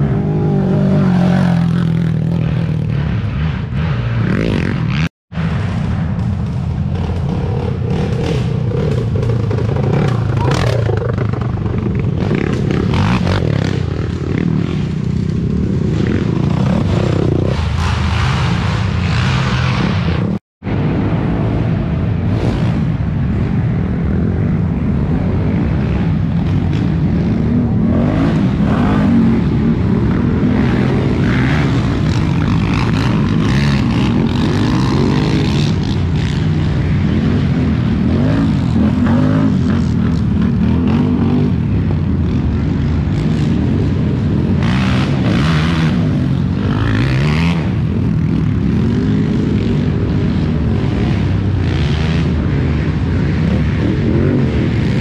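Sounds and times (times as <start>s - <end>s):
quad engines revving: 7.0s - 20.0s, 25.8s - 55.0s.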